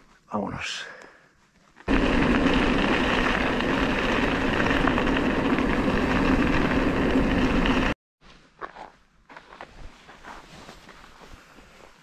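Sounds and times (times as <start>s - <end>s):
bike tyres on dirt trail: 1.3s - 12.0s
wind rushing: 1.9s - 8.0s.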